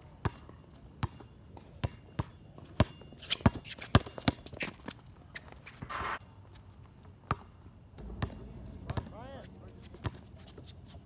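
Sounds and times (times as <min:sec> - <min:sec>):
sneaker squeaks: 0:01.0 - 0:06.6
basketball bouncing: 0:08.0 - 0:10.7.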